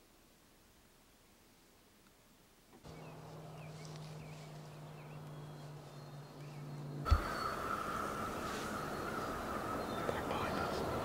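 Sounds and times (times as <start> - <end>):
faint bird chirps: 2.9 - 11.0.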